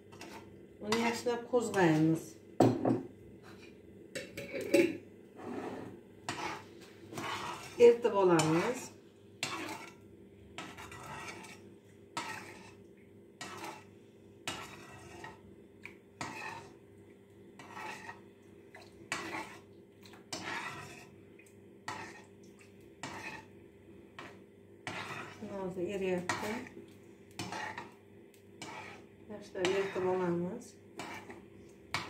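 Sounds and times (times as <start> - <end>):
metal spoon scraping a frying pan: 0.1 - 1.8, 3.4 - 10.0, 10.6 - 12.8, 13.4 - 15.4, 16.2 - 16.8, 17.6 - 18.2, 19.1 - 19.7, 20.3 - 21.2, 21.9 - 22.3, 23.0 - 23.5, 24.2 - 26.7, 27.4 - 28.0, 28.6 - 32.0.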